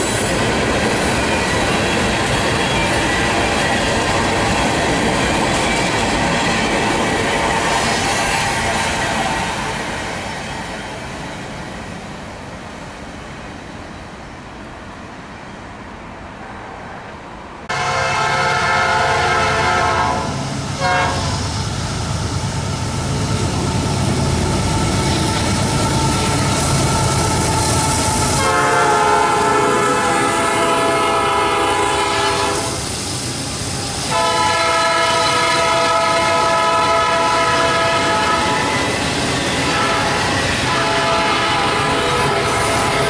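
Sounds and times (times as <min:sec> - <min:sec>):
train cars rolling on rails: 0:00.0 - 0:43.0
locomotive air horn blasts: 0:17.7 - 0:21.4, 0:28.3 - 0:32.8, 0:34.1 - 0:38.7, 0:39.7 - 0:43.0
diesel locomotive rumble: 0:17.7 - 0:43.0.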